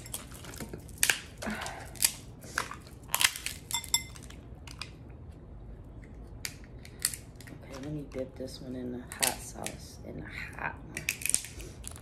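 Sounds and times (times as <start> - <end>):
crab shells cracking: 0.0 - 5.0, 6.3 - 7.8, 11.0 - 12.0.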